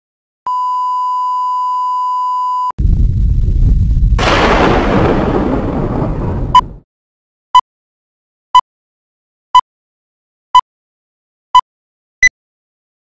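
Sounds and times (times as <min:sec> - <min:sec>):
short beep: 0:00.5 - 0:02.7
loud low rumbling noise: 0:02.8 - 0:06.8.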